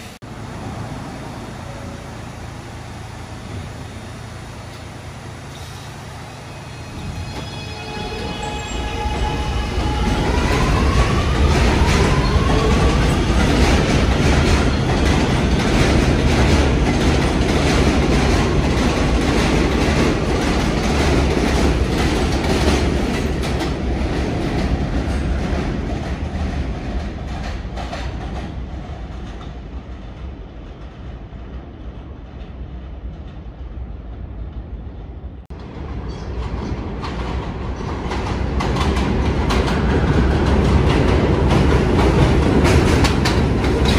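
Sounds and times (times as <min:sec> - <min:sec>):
subway wheels clattering: 0:00.0 - 0:43.9.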